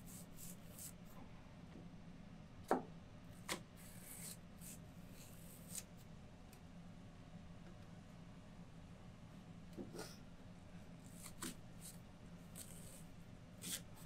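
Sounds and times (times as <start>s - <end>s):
knife slicing green onions: 0.1s - 1.0s, 11.0s - 14.0s.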